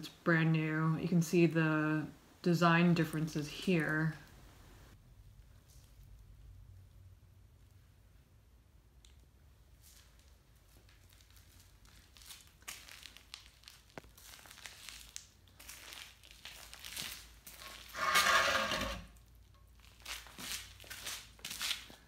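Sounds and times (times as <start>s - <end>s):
metal scrape with faint ring: 17.6s - 19.1s
radiator scuffing on concrete: 17.6s - 19.1s.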